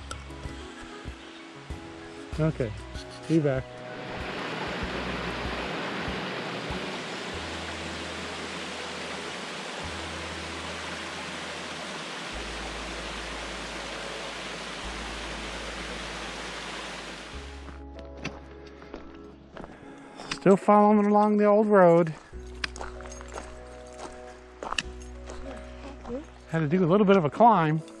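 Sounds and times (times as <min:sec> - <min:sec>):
creek water rushing over rocks: 0:00.0 - 0:17.8.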